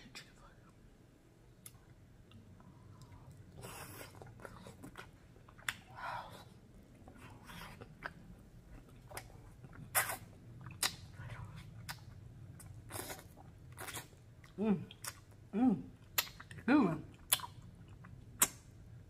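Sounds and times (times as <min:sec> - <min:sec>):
lip smacks: 0:09.0 - 0:12.1, 0:16.0 - 0:16.6, 0:18.4 - 0:18.7.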